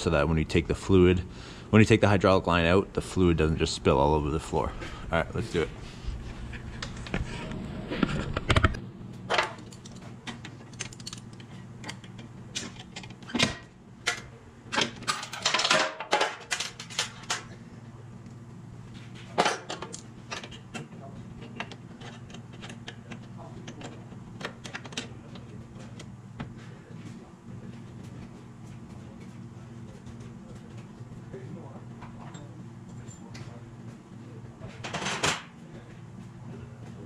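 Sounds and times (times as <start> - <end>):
low hum: 0.0 - 13.1.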